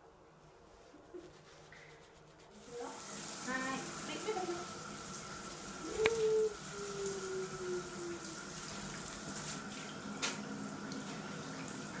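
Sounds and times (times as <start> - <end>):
shower head spraying water: 2.6 - 12.0.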